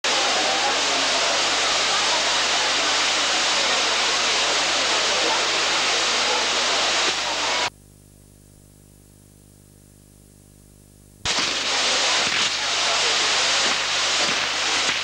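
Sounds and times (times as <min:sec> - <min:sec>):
ground fireworks hissing and crackling: 0:00.0 - 0:07.7, 0:11.2 - 0:15.0.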